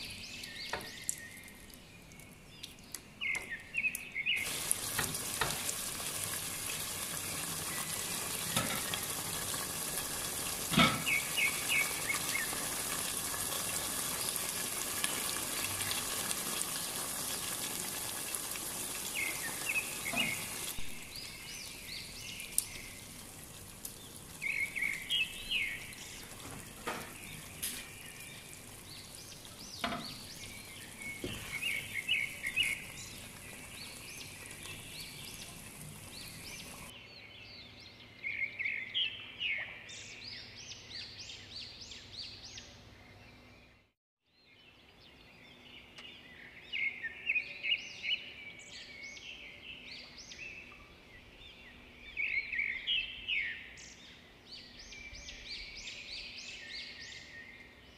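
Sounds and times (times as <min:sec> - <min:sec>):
small birds chirping: 0:00.0 - 0:16.4, 0:17.0 - 0:57.9
faint steady hiss: 0:00.0 - 0:36.9.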